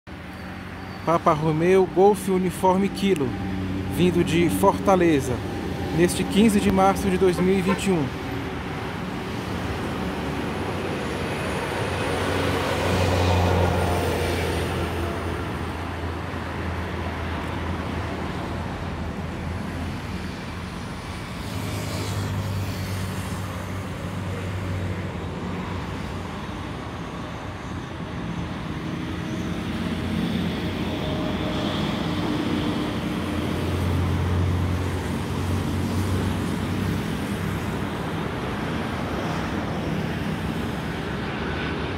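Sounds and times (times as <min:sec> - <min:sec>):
road traffic passing: 0:00.1 - 0:41.9.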